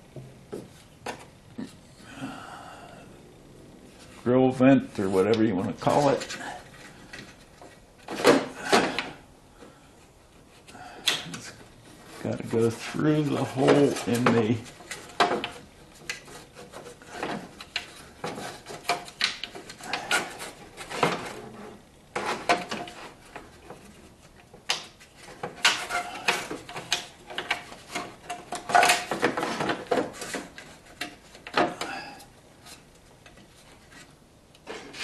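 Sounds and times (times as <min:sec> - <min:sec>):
plastic vent rubbing scraping clicking: 0:10.3 - 0:31.9.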